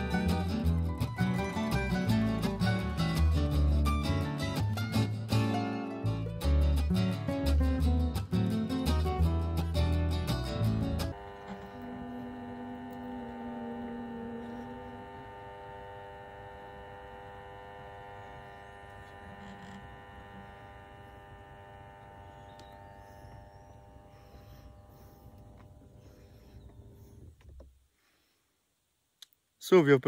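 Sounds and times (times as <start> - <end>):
hum of held tones: 9.3 - 27.6.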